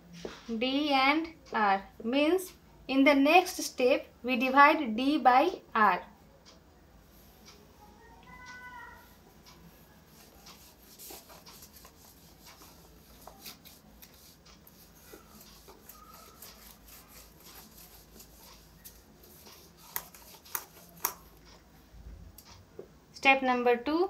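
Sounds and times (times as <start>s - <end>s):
cloth rubbing on whiteboard: 9.6s - 21.4s.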